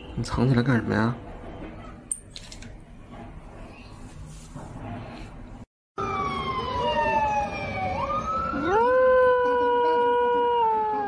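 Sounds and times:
siren wailing: 6.0 - 11.0
hound howling: 8.5 - 11.0.

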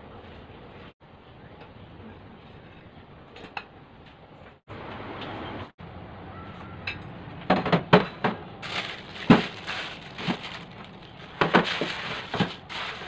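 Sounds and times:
plastic bags crinkling: 8.6 - 13.0.

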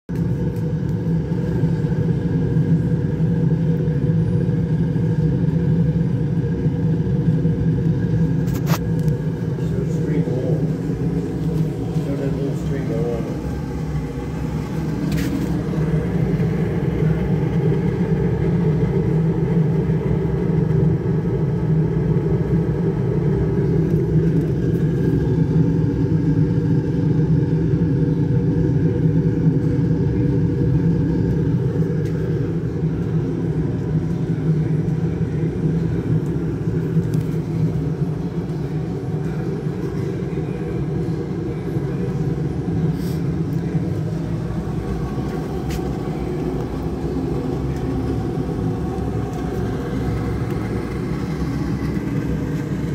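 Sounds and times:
stove burner and blower drone: 0.1 - 52.9.

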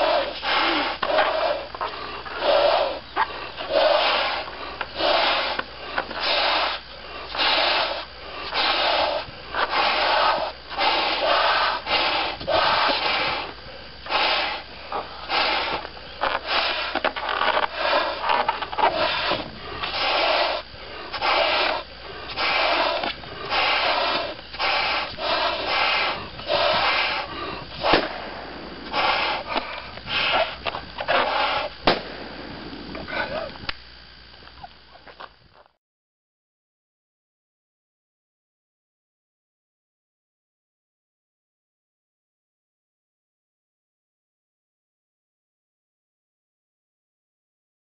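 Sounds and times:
rasping breaths drawn in: 0.0 - 31.8, 32.9 - 33.6
people blowing into balloons: 0.0 - 33.6
balloon bursting bang: 27.8 - 29.4, 31.8 - 33.0.

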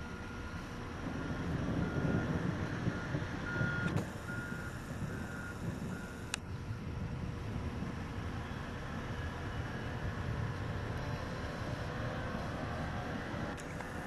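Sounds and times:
vehicle reversing alarm beeping: 0.0 - 6.7.

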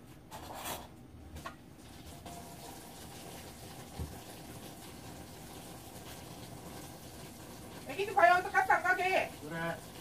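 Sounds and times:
broth bubbling in a frying pan: 1.7 - 10.0.

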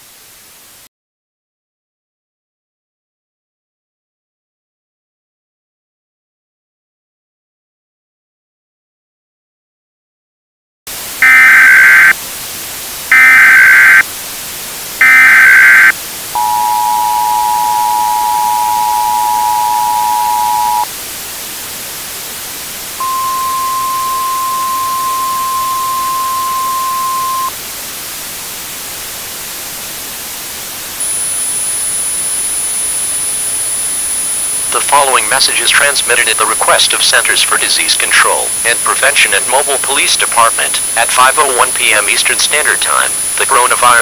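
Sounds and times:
static hiss: 10.9 - 44.0
faint high-pitched whine: 11.0 - 44.0
two-tone attention signal: 11.2 - 12.1, 13.1 - 14.0, 15.0 - 20.9, 23.0 - 27.5
data bursts: 11.2 - 12.2, 13.1 - 14.0, 15.0 - 20.9, 23.0 - 27.6, 31.0 - 44.0
single steady tone: 15.0 - 20.9, 23.0 - 27.6.

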